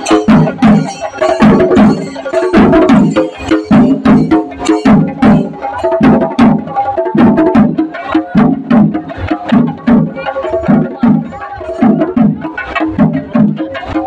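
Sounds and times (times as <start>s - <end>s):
marching drums beating: 0.0s - 14.0s.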